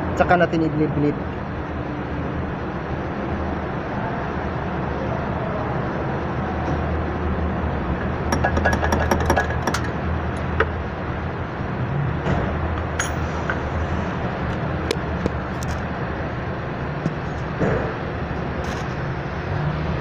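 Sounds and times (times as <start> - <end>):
wrench knocking on metal fitting: 8.3 - 10.8.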